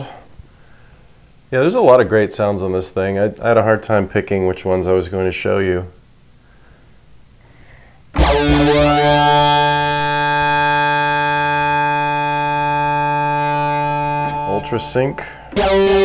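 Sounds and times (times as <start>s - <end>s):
synthesizer held note: 8.2s - 16.0s.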